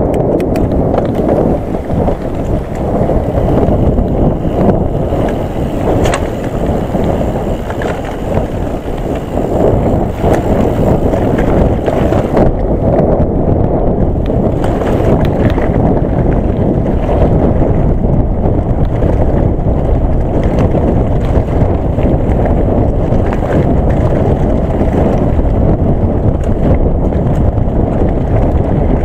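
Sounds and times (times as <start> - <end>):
sharp clicks and knocks: 0.0 - 1.5, 5.2 - 8.5
bike frame rattling: 0.0 - 29.0
bike tyres rumbling on stones: 0.0 - 29.0
wind buffeting microphone: 0.0 - 29.0.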